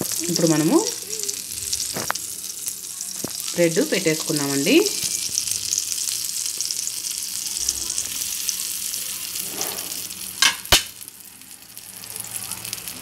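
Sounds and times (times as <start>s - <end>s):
butter sizzling in a frying pan: 0.0s - 13.0s.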